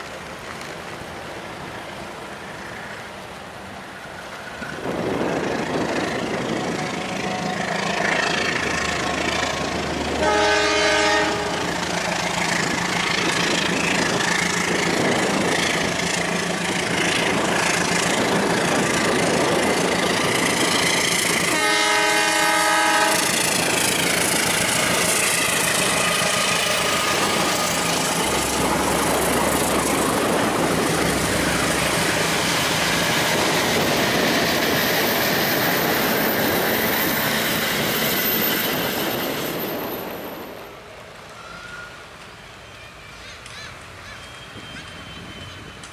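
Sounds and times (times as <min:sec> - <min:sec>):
rail clatter and rumble: 0:00.0 - 0:45.9
toy train horn blast: 0:10.2 - 0:11.7, 0:21.5 - 0:23.4.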